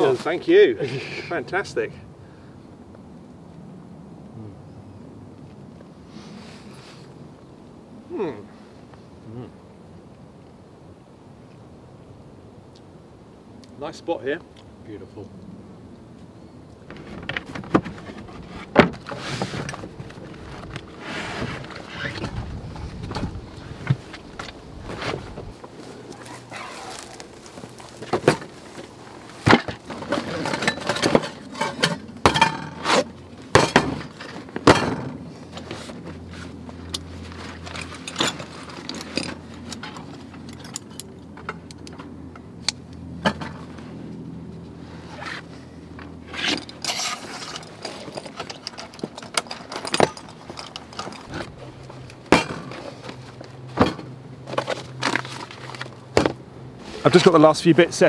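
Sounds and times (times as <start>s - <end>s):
cloth bag rustling: 24.8s - 28.8s
metal pots clinking and scraping: 29.6s - 35.2s, 46.3s - 53.2s.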